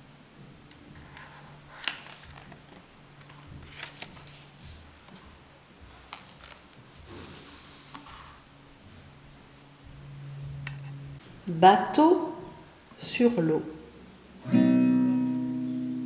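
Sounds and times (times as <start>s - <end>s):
book pages rustling: 0.9s - 9.7s.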